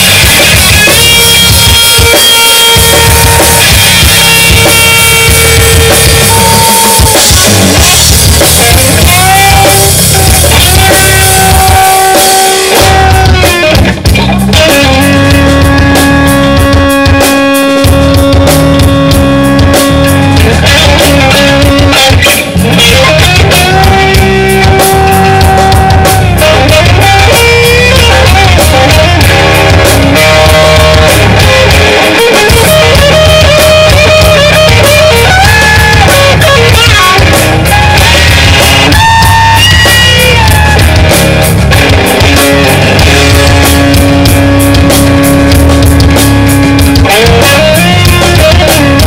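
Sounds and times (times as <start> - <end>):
blues-rock band playing: 0.0 - 49.0
lead electric guitar bending notes: 0.0 - 49.0.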